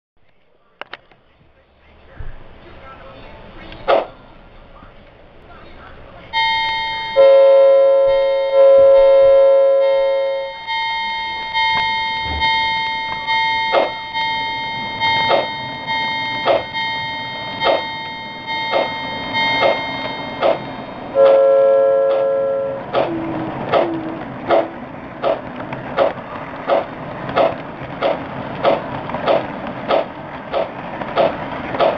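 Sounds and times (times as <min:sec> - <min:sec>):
locomotive bell ringing: 0:06.3 - 0:24.8
chime whistle blasts: 0:06.6 - 0:22.8.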